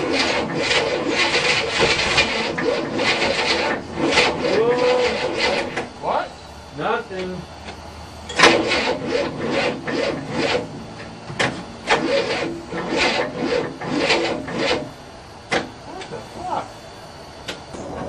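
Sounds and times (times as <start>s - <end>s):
engine cranking: 0.0s - 5.9s, 8.3s - 14.9s
starter motor hum: 7.6s - 15.0s
click: 17.4s - 17.6s.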